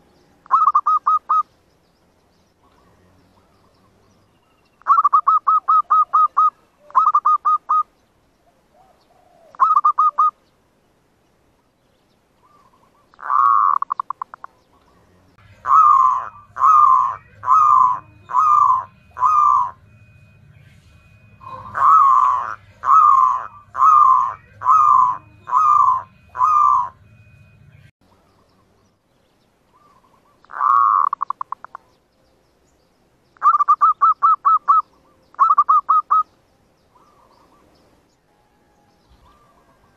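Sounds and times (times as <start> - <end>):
dove cooing and trilling: 0.4 - 1.5, 4.8 - 7.9, 8.5 - 10.4, 12.4 - 14.5, 15.4 - 20.0, 20.7 - 27.1, 29.7 - 31.9, 33.4 - 36.3, 36.9 - 37.8, 38.4 - 39.9.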